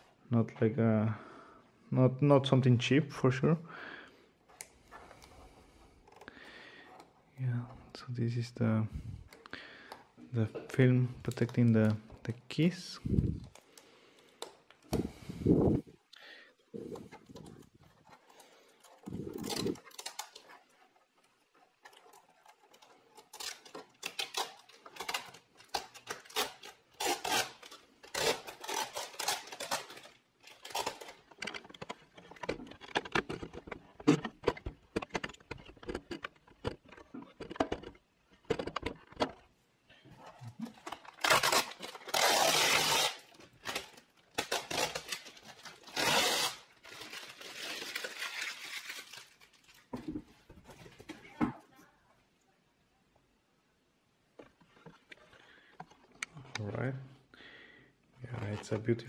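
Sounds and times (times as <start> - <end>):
plastic film crinkling and tearing: 16.8 - 39.5, 40.2 - 49.9.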